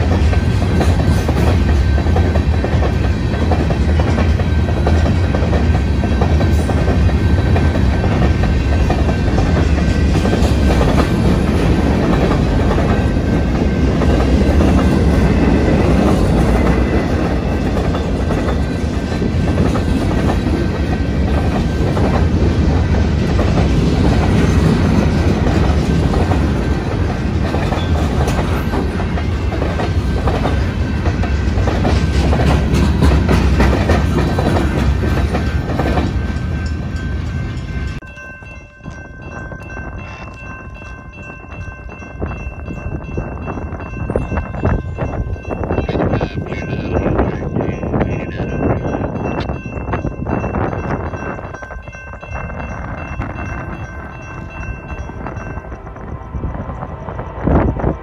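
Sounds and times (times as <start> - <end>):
wheels clicking over rail joints: 0.0 - 42.9
train wheels rumbling on rail: 0.0 - 58.0.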